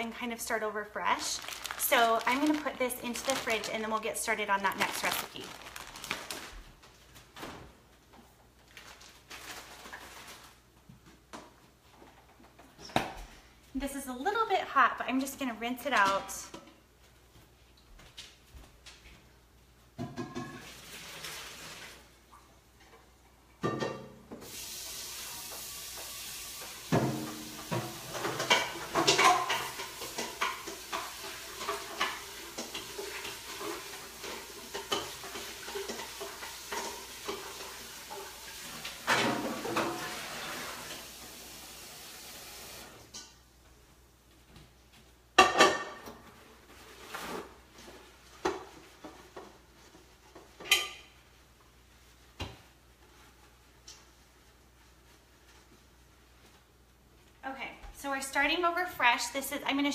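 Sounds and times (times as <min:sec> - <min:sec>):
plastic bag rustling: 0:00.4 - 0:07.4, 0:08.6 - 0:10.8
tap water running: 0:20.4 - 0:22.5, 0:24.0 - 0:43.1
metal pot clanking in sink: 0:50.6 - 0:51.1.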